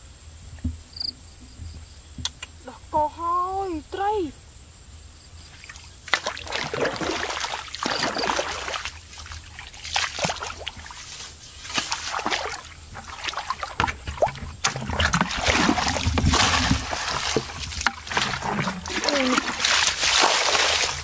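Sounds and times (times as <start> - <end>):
wading through muddy water: 5.5 - 21.0
grass brushing against body: 7.4 - 21.0.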